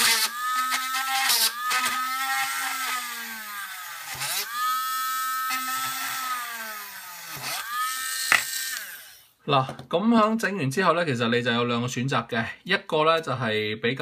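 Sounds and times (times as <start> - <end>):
rotary tool drilling plastic: 0.0 - 9.3.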